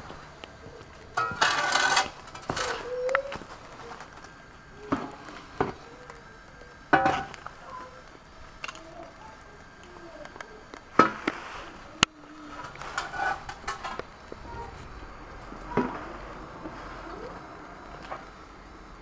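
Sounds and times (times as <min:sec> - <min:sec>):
shovel scraping on paving: 0:01.2 - 0:02.9.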